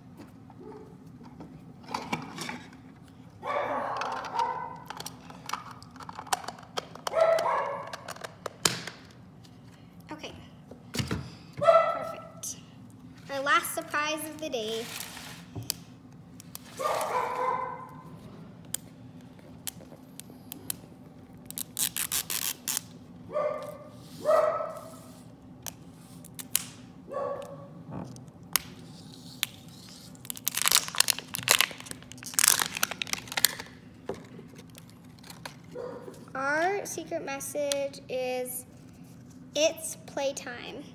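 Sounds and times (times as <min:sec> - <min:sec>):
plastic wrapping crinkling and tearing: 0:21.4 - 0:23.0, 0:28.2 - 0:35.8.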